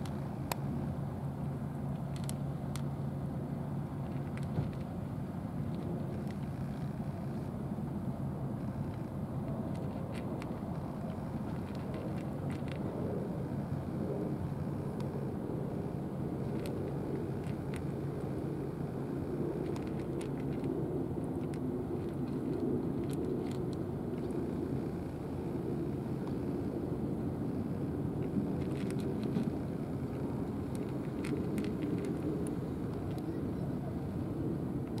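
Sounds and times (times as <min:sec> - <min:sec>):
faint hum: 0:00.0 - 0:35.0
low outdoor rumble: 0:00.0 - 0:35.0.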